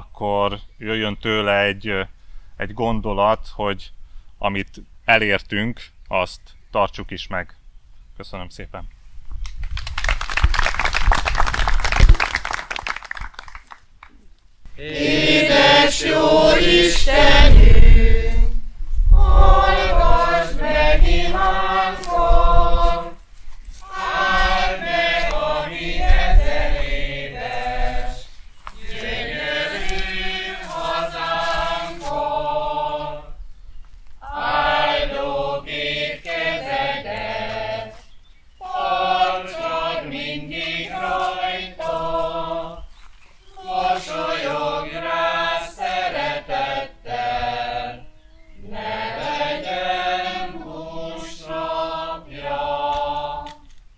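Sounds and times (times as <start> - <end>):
voices singing a hymn unaccompanied: 14.7 - 33.6, 34.2 - 53.8.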